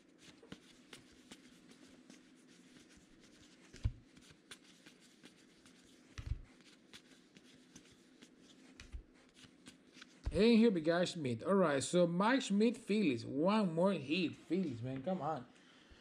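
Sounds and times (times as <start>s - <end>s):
cards rubbing and flicking: 0.0s - 10.4s
faint steady hum: 0.0s - 16.0s.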